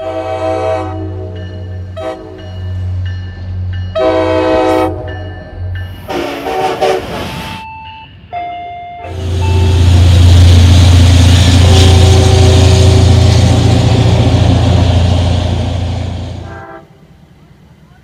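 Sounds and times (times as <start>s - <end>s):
locomotive air horn blasts: 0.0s - 1.4s, 2.0s - 2.5s, 4.0s - 5.1s, 6.0s - 7.3s, 9.0s - 17.1s
diesel locomotive rumble: 9.0s - 18.0s.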